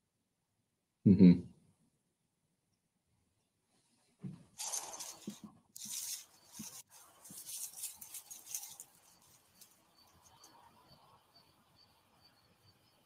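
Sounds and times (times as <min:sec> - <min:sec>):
leaves and twigs rustling underfoot: 0:04.6 - 0:10.5.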